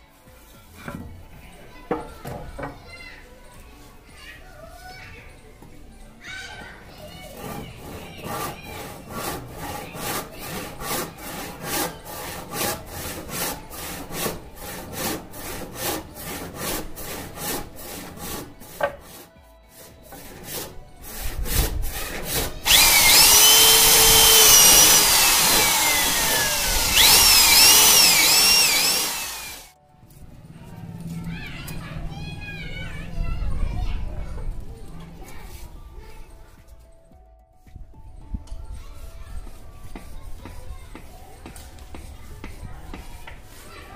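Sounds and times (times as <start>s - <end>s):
rasping strokes on wood: 7.0s - 29.7s, 39.0s - 43.9s
electric drill boring through wood: 22.6s - 29.7s.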